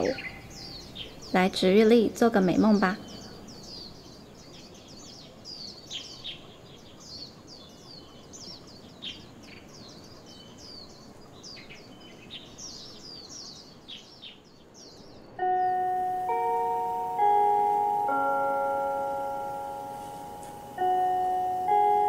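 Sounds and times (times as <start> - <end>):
small birds chirping: 0.0 - 22.0
chime-like mallet percussion music: 15.4 - 22.0
soft forest hiss: 15.8 - 22.0.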